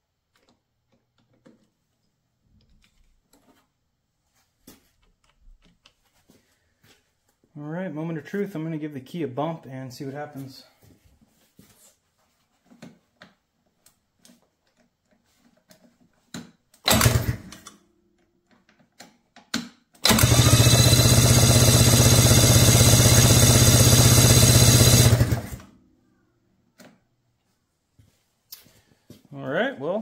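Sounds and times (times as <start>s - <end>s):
engine starter cranking: 16.9s - 17.7s, 20.0s - 25.6s.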